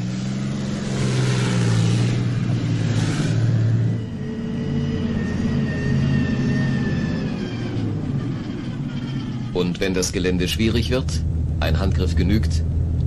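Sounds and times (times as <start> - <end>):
armoured vehicle engine whining: 0.0 - 13.0
tracked vehicle engine clattering: 4.8 - 13.0.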